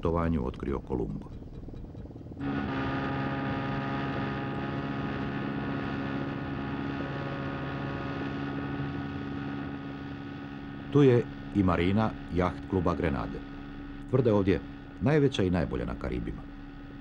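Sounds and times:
outboard motor running: 0.0s - 17.0s.

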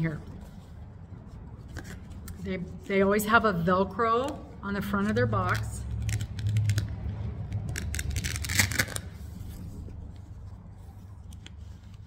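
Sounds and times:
low steady hum: 0.0s - 12.0s
velcro ripping: 5.4s - 9.7s.

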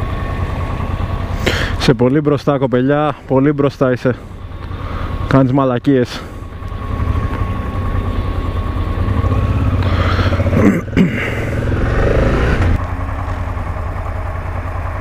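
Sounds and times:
motorcycle engine accelerating: 6.3s - 15.0s.

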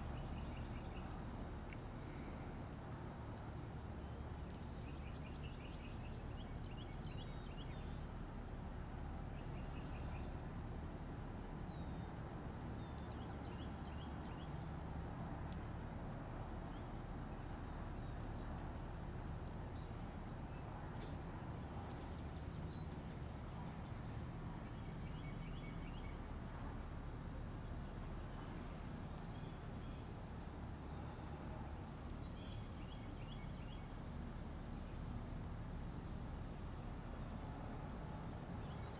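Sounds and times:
insects chorus: 0.0s - 38.9s.

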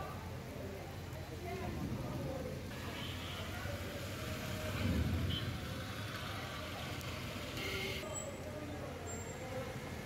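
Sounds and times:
rain falling on street: 0.0s - 10.0s
traffic on wet road: 0.0s - 10.0s.

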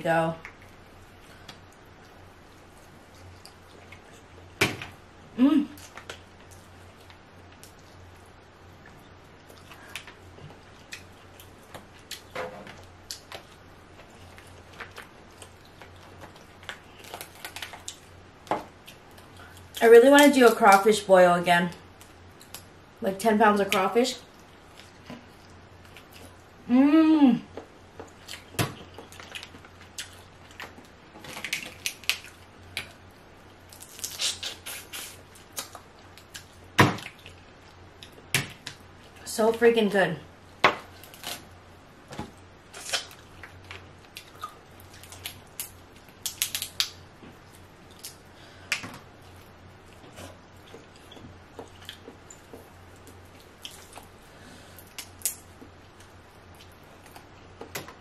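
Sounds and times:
chewing: 49.3s - 54.1s.

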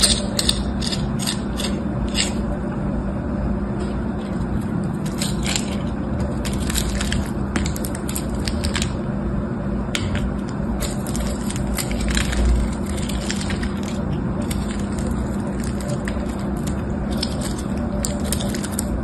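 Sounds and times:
knife crunching through hard soap: 0.0s - 2.4s, 4.9s - 9.0s, 10.6s - 19.0s
steady low hum: 0.0s - 19.0s.

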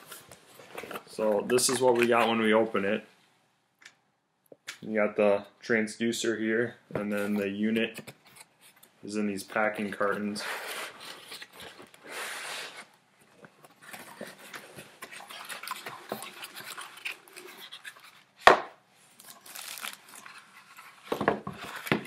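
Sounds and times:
plastic crinkling: 9.8s - 18.4s, 19.0s - 22.0s.

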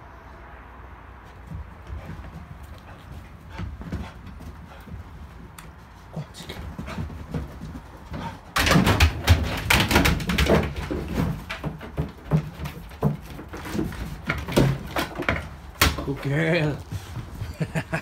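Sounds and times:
dog scuffling: 1.2s - 18.0s
plastic jerrycans knocking and clattering: 6.8s - 17.1s.

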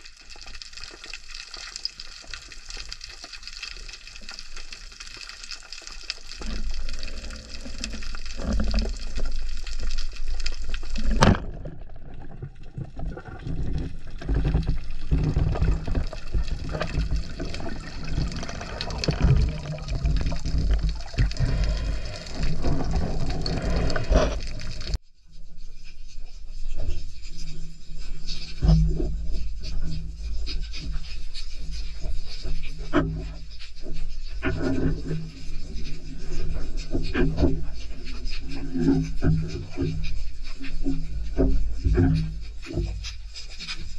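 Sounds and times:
underwater water rushing and sloshing: 0.0s - 25.0s, 26.8s - 43.9s
low rumble: 10.7s - 25.0s.

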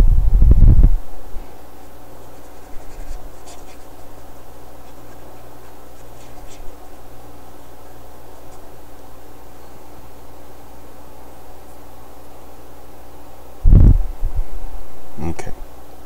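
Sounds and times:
steady low hum: 0.0s - 16.0s
paintbrush strokes on canvas: 1.7s - 7.1s.

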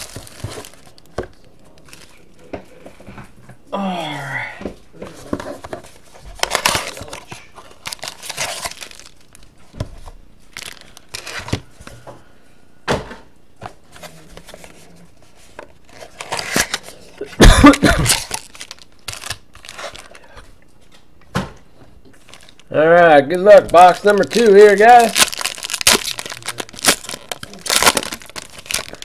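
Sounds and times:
foil pack crinkling: 0.0s - 1.1s, 6.4s - 9.5s, 10.5s - 11.7s, 17.6s - 20.4s, 22.2s - 22.7s, 23.4s - 29.0s
cardboard tearing: 6.4s - 9.1s, 23.8s - 29.0s.

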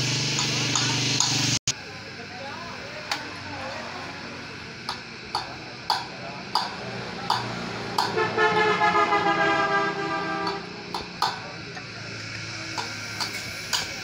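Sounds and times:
ratchet wrench clicking: 4.8s - 8.2s, 10.4s - 11.5s, 12.4s - 14.0s
vehicle horn: 7.8s - 10.9s.

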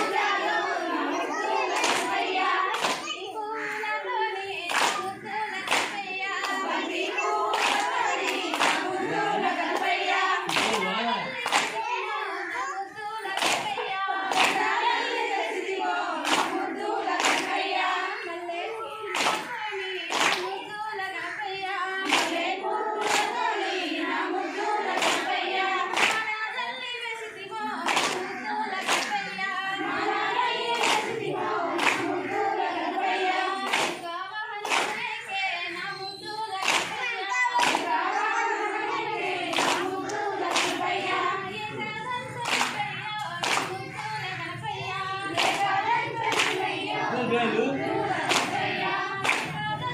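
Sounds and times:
women singing a folk song: 0.0s - 49.9s
sharp hand claps: 1.7s - 3.2s, 4.7s - 11.9s, 13.4s - 15.4s, 16.2s - 16.6s, 17.2s - 18.0s, 19.2s - 20.5s, 22.1s - 22.4s, 23.0s - 23.7s, 24.9s - 26.4s, 27.9s - 29.3s, 30.3s - 32.2s, 33.7s - 35.2s, 36.6s - 37.9s, 39.5s - 41.2s, 42.4s - 44.2s, 45.4s - 46.7s, 48.1s - 49.7s.

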